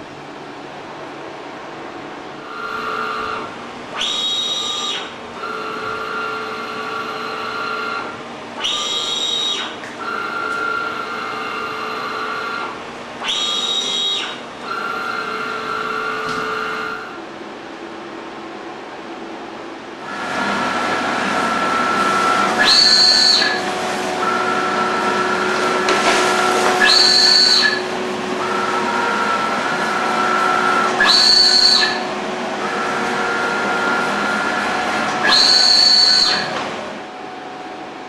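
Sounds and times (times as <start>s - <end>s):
printing machine motor whine: 0.0s - 38.0s
higher rising and falling whine: 14.7s - 38.0s.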